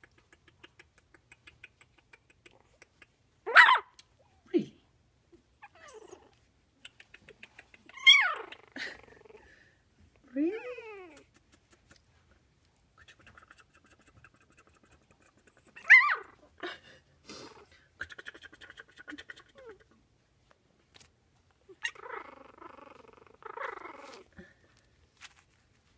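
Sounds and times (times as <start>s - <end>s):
puppy yelp: 3.5s - 4.0s, 7.8s - 8.6s, 15.6s - 16.5s, 21.7s - 24.3s
puppies squeaking and whimpering: 7.0s - 9.2s, 15.6s - 16.4s, 21.7s - 24.3s.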